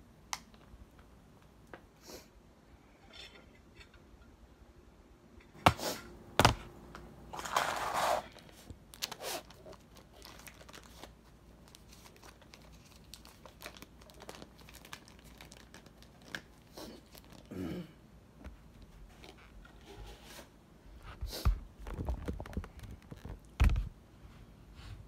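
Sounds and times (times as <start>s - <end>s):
crinkling rustle: 7.3s - 17.5s, 21.8s - 23.9s
small crackles and clicks: 9.0s - 17.5s, 21.8s - 23.8s.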